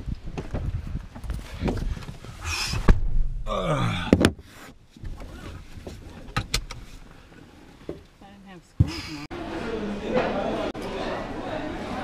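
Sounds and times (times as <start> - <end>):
rustling and shuffling: 0.0 - 3.0, 4.2 - 8.2.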